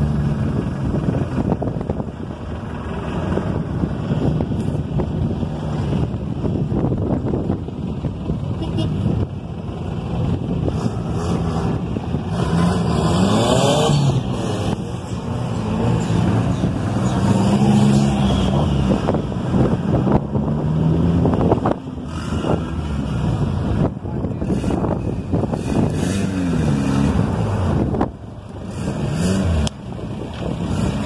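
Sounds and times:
off-road engines revving: 0.0s - 31.0s.

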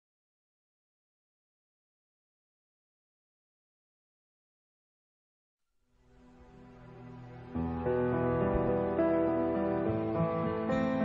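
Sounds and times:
soft music: 6.0s - 11.0s.

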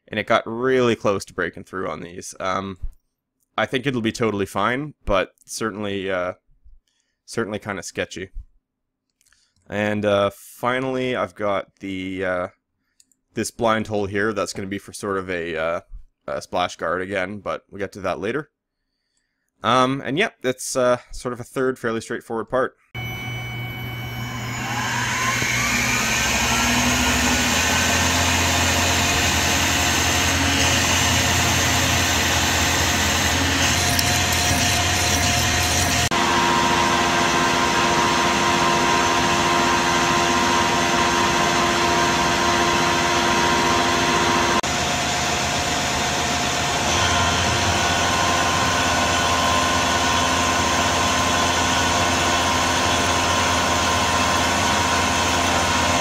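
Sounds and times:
end mill cutting metal: 23.0s - 56.0s
mill spindle whine: 23.0s - 56.0s.

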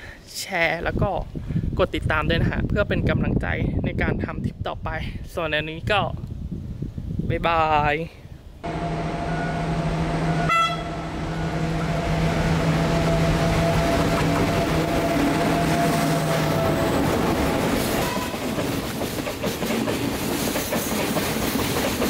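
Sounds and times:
diesel locomotive engine hum: 8.6s - 22.0s
train wheels clattering over rail joints: 17.0s - 22.0s.

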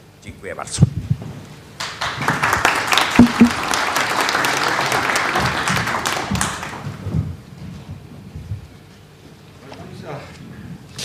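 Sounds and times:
audience applauding: 1.8s - 6.9s.

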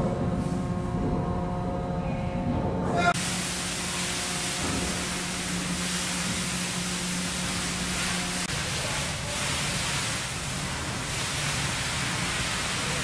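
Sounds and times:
steady low hum: 0.0s - 13.0s
fire hose spraying water: 3.2s - 13.0s.

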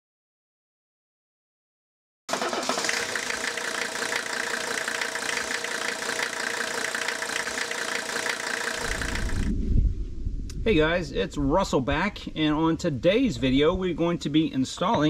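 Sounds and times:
engine running steadily: 2.3s - 9.5s
low rumble: 8.8s - 13.6s.

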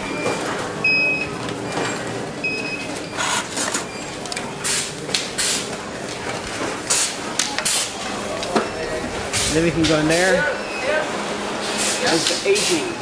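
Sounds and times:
steady machine hum: 7.9s - 13.0s.

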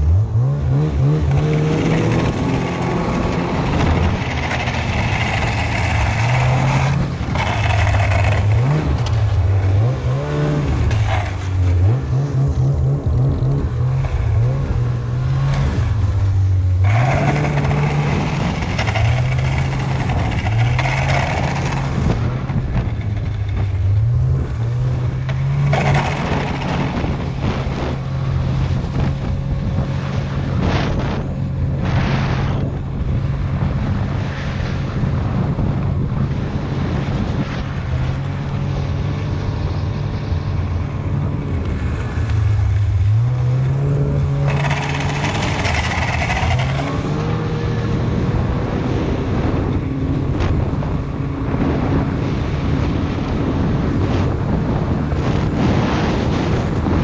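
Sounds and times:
snowmobile engine running: 0.0s - 57.0s
rushing noise: 36.8s - 57.0s.

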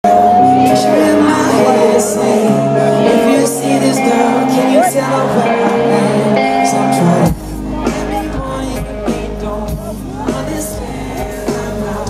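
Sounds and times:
bass notes: 0.0s - 12.0s
keyboard chords: 0.0s - 12.0s
man singing into a microphone: 0.0s - 12.0s.

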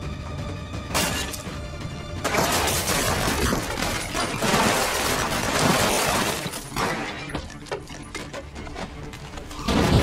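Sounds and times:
tense score music: 0.0s - 10.0s
debris smashing and shattering: 2.2s - 7.6s.

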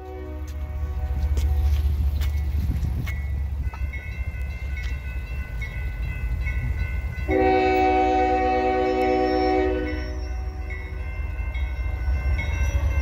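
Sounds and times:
locomotive horn chord: 0.0s - 1.8s, 7.3s - 10.3s
crossing bell ringing: 0.0s - 13.0s
train rumbling: 0.0s - 13.0s.

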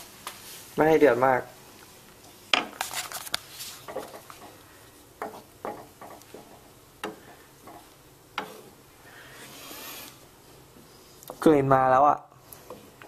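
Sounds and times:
wooden spoon knocking on pan: 3.9s - 4.6s, 5.2s - 8.6s.

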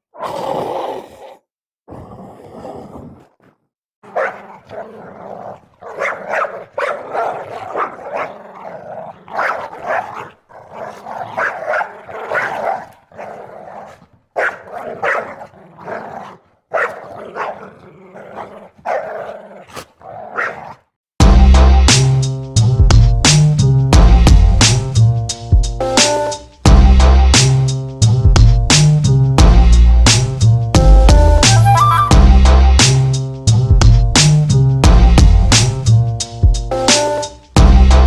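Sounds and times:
dog barking: 4.0s - 5.0s, 5.8s - 8.5s, 9.3s - 20.8s
music with a beat: 21.2s - 38.0s.

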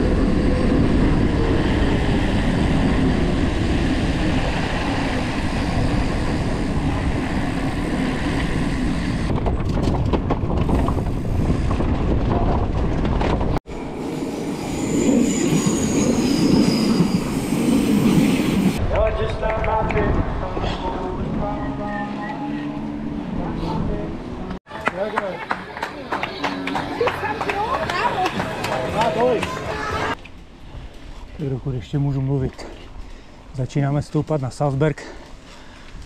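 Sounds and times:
mountain bike tyre noise: 0.0s - 13.6s.

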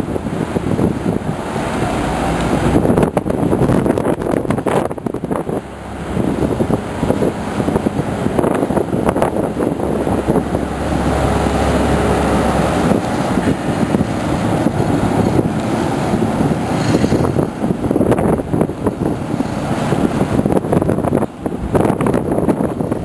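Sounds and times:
boat engine rumble: 0.0s - 23.0s
machinery hum: 0.0s - 23.0s
wind buffeting microphone: 0.0s - 23.0s.

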